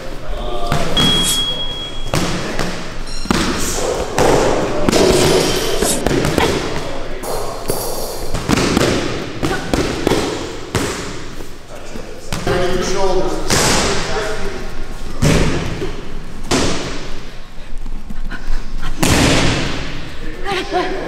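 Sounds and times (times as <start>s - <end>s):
boxing gloves striking pads: 2.1s - 6.8s, 7.7s - 11.4s, 13.5s - 14.1s, 16.5s - 17.2s.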